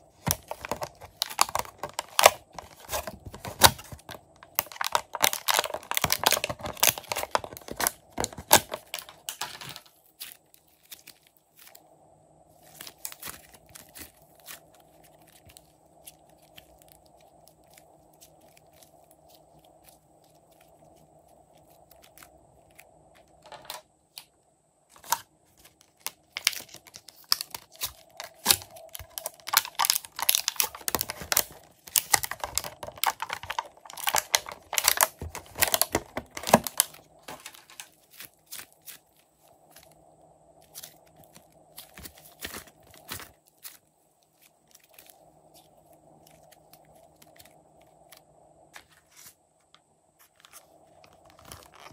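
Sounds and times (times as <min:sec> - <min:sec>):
hands squishing slime: 0:12.6 - 0:22.8, 0:25.7 - 0:40.0, 0:40.6 - 0:48.2.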